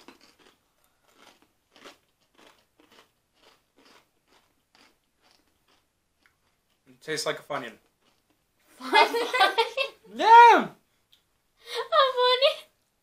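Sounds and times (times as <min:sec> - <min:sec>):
crunchy snack being chewed: 0:00.0 - 0:06.8, 0:07.8 - 0:08.4.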